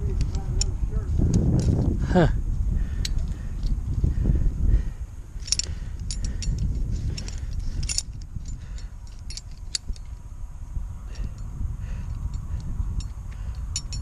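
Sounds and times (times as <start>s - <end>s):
metal climbing hardware clinking: 0.0s - 1.9s, 3.0s - 4.0s, 5.3s - 10.2s, 11.1s - 14.0s.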